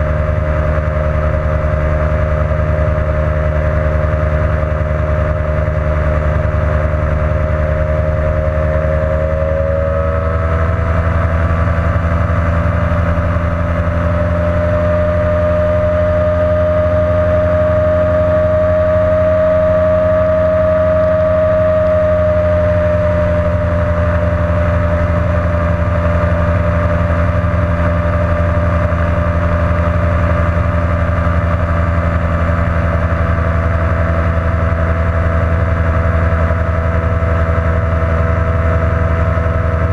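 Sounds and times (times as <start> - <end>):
ultralight engine and propeller drone: 0.0 - 39.9.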